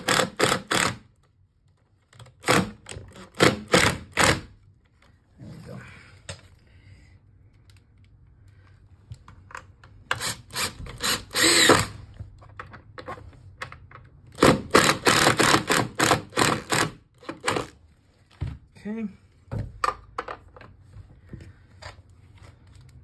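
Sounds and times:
impact driver driving screws: 0.0s - 1.0s, 2.4s - 4.5s, 10.1s - 12.0s, 14.3s - 17.8s.

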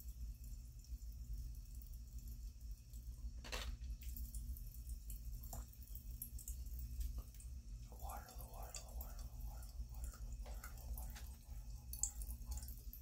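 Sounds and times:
low hum: 4.0s - 13.0s.

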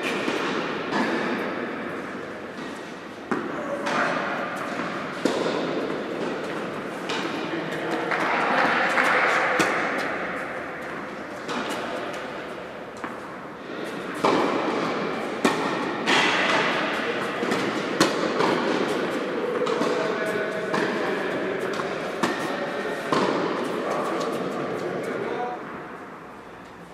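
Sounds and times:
tennis racket hitting ball: 0.0s - 25.0s
tennis ball bouncing on court: 2.6s - 12.3s, 13.0s - 13.3s, 14.2s - 20.0s.

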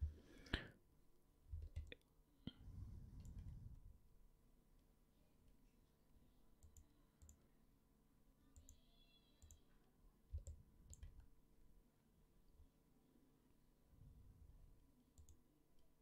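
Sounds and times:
computer mouse clicks: 1.6s - 2.0s, 3.2s - 3.5s, 6.6s - 7.4s, 8.6s - 9.7s, 10.3s - 11.3s, 15.2s - 15.4s.

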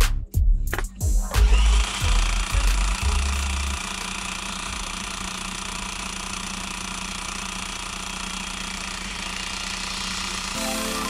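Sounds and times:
sewing machine running: 1.4s - 5.6s.

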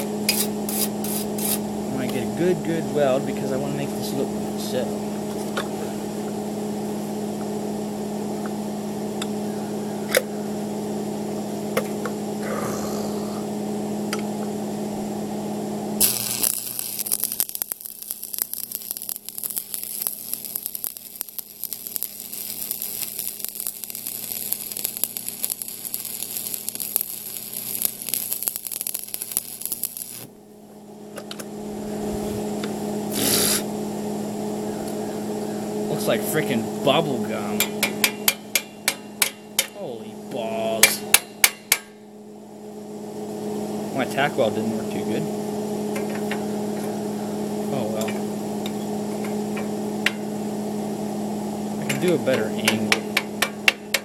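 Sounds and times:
welding arc crackling: 0.0s - 7.0s, 15.8s - 33.8s, 35.9s - 42.0s, 43.8s - 54.0s
machine hum: 0.0s - 54.0s.

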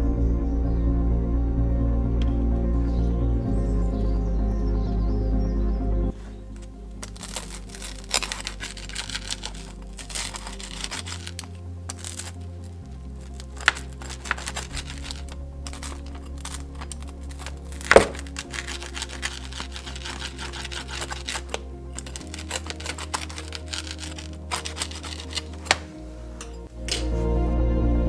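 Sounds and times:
background music with low bass: 0.0s - 28.0s
pizza cutter crunching crust: 7.0s - 12.4s, 13.2s - 25.9s.

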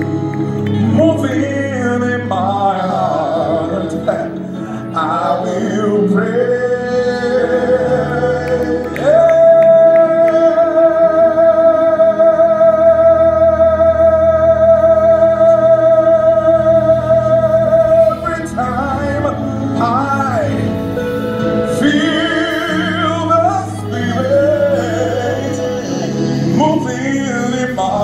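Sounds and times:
band playing: 0.0s - 28.0s
man singing: 0.0s - 28.0s.

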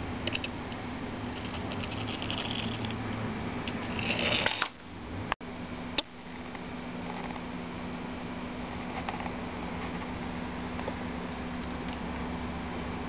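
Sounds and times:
toy truck whirring: 1.3s - 3.0s, 3.8s - 4.7s.

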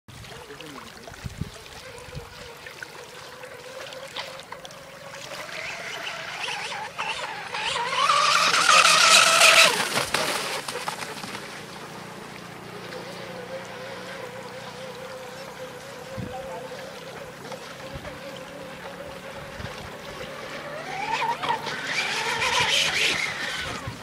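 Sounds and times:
model boat motor whining: 1.3s - 24.0s.

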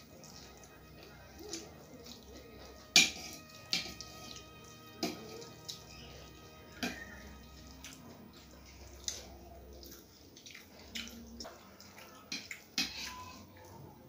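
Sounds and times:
fingers mixing rice: 0.0s - 14.0s
spoon clinking on metal plates: 2.1s - 5.6s, 12.2s - 13.4s.

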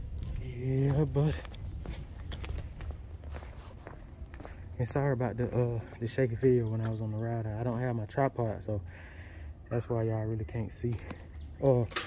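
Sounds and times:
footsteps on concrete: 0.0s - 7.0s
low steady rumble: 0.0s - 11.6s.

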